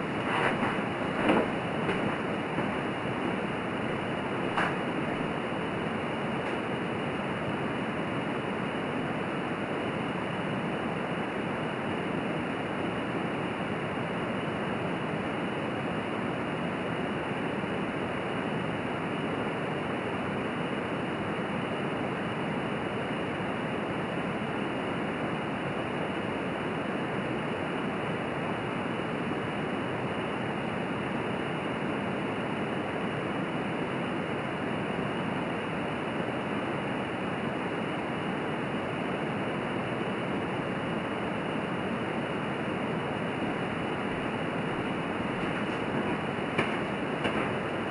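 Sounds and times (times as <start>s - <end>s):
stove flame rushing hiss: 0.0s - 10.2s, 41.1s - 47.9s.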